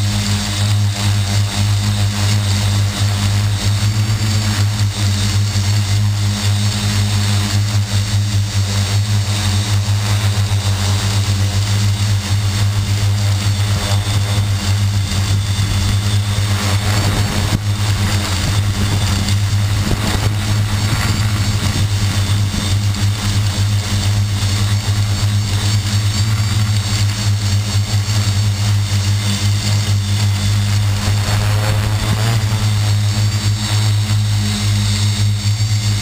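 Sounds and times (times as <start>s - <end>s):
quadcopter motors droning: 0.0s - 36.0s.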